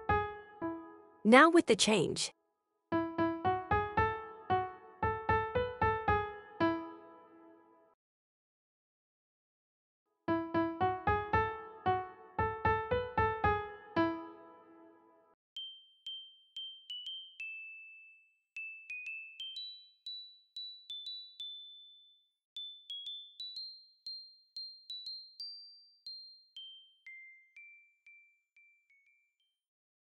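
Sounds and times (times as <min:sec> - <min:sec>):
piano notes: 0:00.0 - 0:01.2, 0:03.0 - 0:07.5, 0:10.4 - 0:15.1
tinkling bell-like melody: 0:15.6 - 0:29.6.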